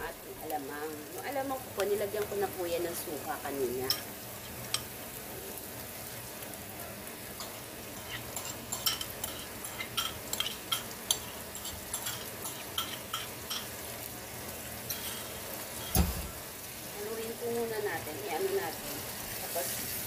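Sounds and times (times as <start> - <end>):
oil sizzling in a frying pan: 0.0 - 20.0
sharp crackling pops: 0.4 - 2.5.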